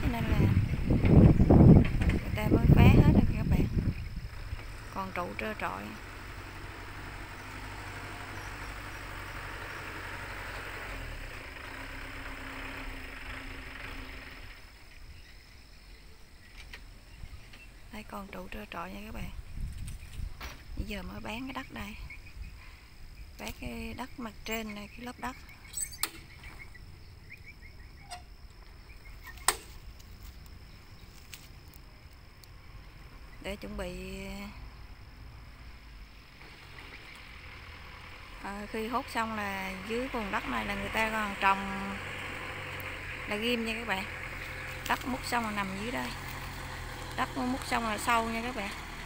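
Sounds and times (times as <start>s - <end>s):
low rumble: 0.0s - 12.2s
heavy machinery engine rumbling: 0.0s - 49.0s
high insect drone: 0.0s - 49.0s
bird chirping: 8.2s - 9.2s, 14.0s - 18.5s, 19.2s - 31.2s, 35.6s - 37.5s.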